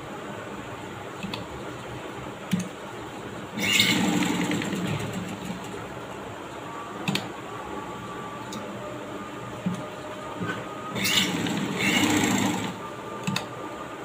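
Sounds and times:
sewing machine stitching: 3.6s - 5.8s, 11.0s - 12.8s.

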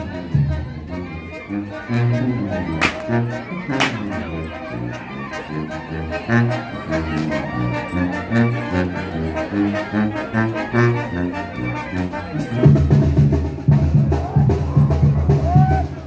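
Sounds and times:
brass band playing: 0.0s - 16.0s
sharp percussive clicks: 2.8s - 3.2s, 3.8s - 4.0s.

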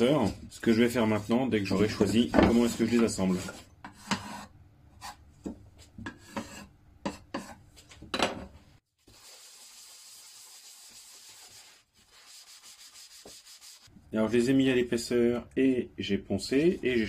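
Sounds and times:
sanding block on wood: 9.1s - 13.9s.

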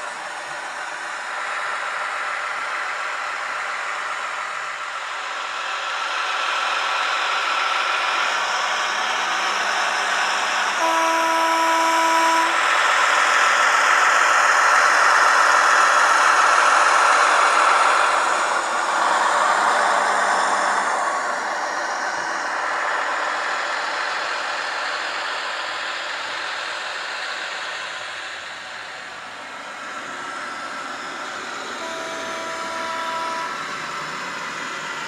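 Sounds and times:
diesel locomotive engine running: 0.0s - 35.0s
locomotive horn blast: 10.7s - 12.7s, 31.8s - 34.0s.

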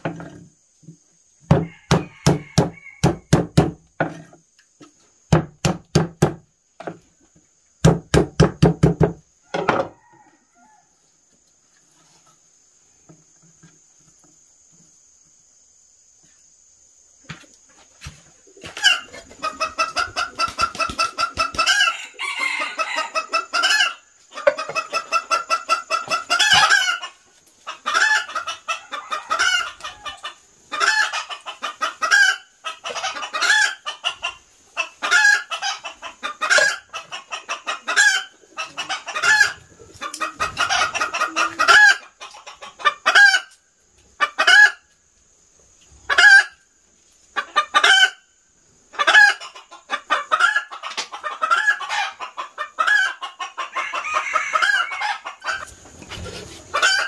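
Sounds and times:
chickens clucking: 0.0s - 7.9s, 8.5s - 57.0s.

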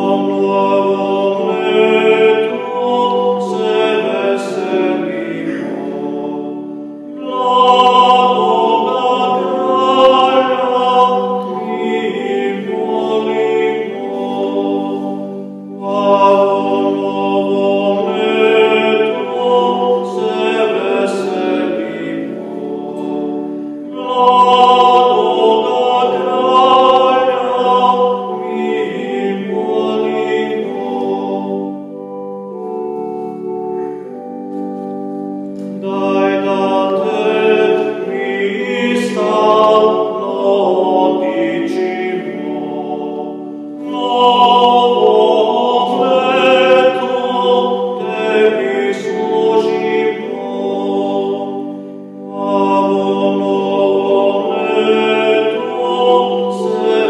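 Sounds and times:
electronic keyboard organ voice: 0.0s - 57.0s
hymn singing: 0.0s - 57.0s.

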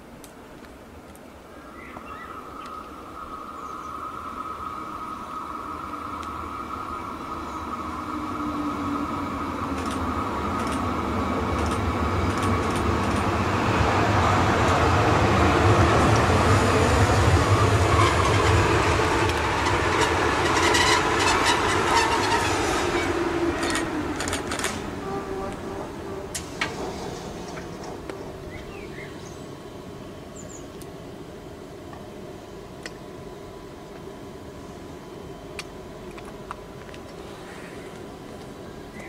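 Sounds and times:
electric train rumbling: 0.0s - 39.0s
wheels clicking and squeaking on track: 17.8s - 24.8s.

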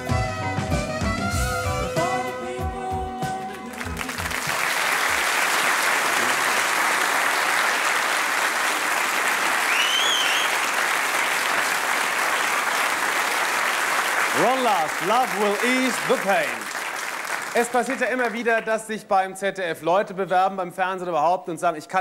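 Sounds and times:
audience applauding: 3.6s - 18.6s.

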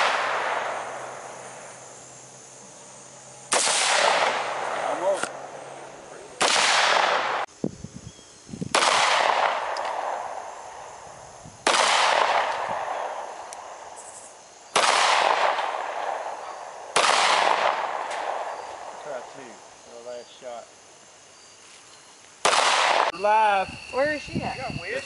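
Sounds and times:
rifle shot: 0.0s - 0.8s, 3.5s - 5.3s, 6.4s - 7.5s, 8.7s - 10.4s, 11.6s - 13.2s, 14.7s - 18.6s, 22.4s - 23.1s
handgun shots with echo: 6.4s - 7.4s, 8.7s - 10.1s.

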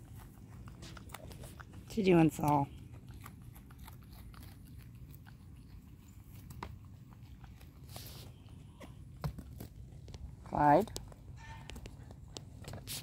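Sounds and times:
goat chewing grass: 0.0s - 13.0s
rustle: 6.0s - 8.5s.

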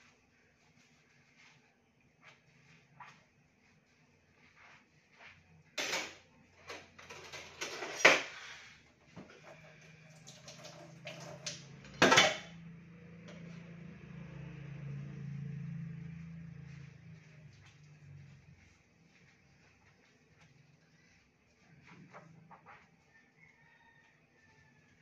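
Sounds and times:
low steady hum: 8.8s - 23.4s
dishes clattering in sink: 10.3s - 12.5s.

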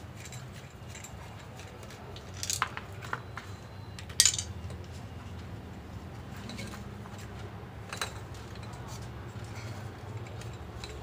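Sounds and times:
plastic housing clicks and rattles: 4.0s - 4.5s.

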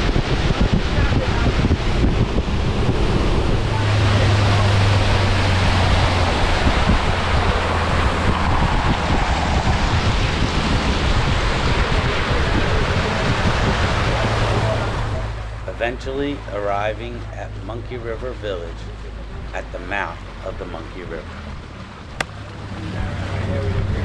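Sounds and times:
wind rushing on microphone: 0.0s - 20.2s, 21.0s - 24.0s
boat engine humming: 0.0s - 24.0s.

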